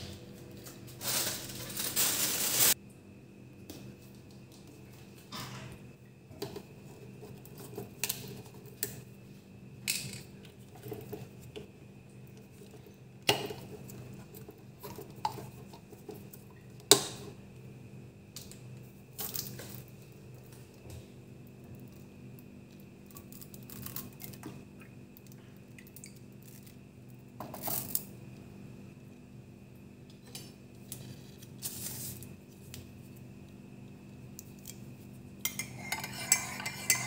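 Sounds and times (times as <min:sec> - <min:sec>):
cutlery clinking on a plate: 0:35.5 - 0:37.0.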